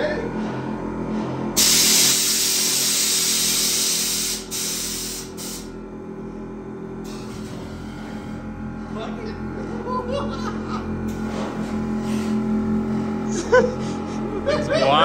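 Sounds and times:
air suspension hissing: 1.6 - 5.8, 7.0 - 8.2.

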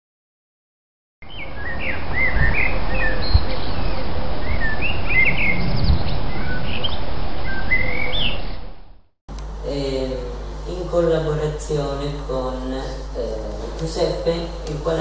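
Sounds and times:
birds chirping: 1.2 - 9.0.

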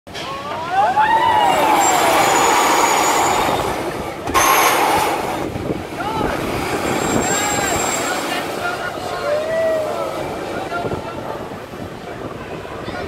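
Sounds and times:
riders screaming: 0.7 - 3.8
rush of compressed air: 1.8 - 5.6.

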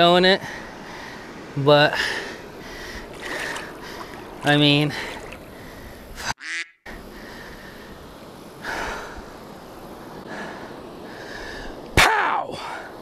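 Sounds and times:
river water lapping against kayak: 2.2 - 6.2
fish splash: 3.1 - 5.6.

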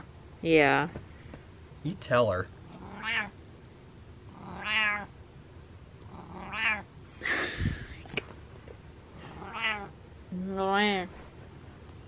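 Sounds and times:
cat meowing: 2.8 - 3.3, 4.5 - 5.1, 6.4 - 6.9, 9.4 - 9.9.

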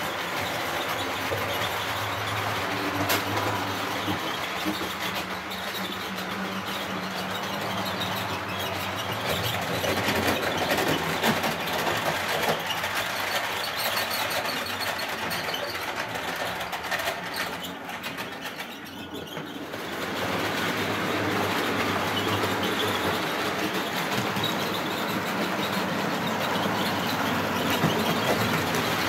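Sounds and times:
model train wheels rattling: 0.0 - 29.0.

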